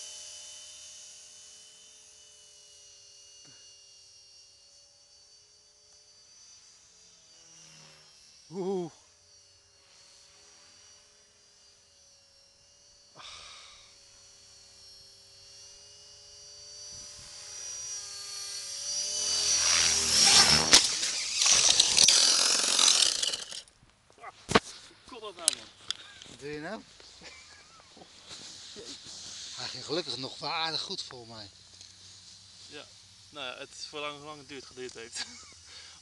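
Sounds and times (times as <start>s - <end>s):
rc helicopter whirring: 0.0s - 23.8s, 24.5s - 36.0s.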